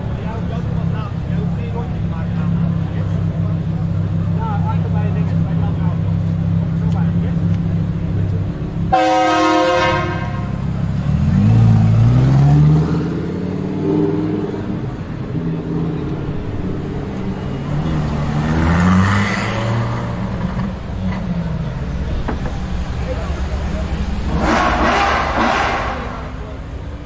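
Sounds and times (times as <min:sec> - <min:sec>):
sports car engine revving: 0:00.1 - 0:27.0
car horn: 0:08.9 - 0:10.7, 0:24.2 - 0:26.6
another engine revving: 0:08.9 - 0:26.6.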